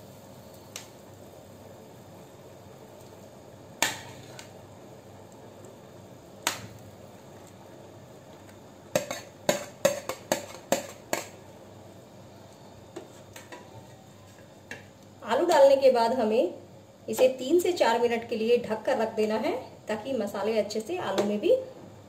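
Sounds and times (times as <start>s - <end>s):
utensils knocking against a pan: 8.9s - 11.4s.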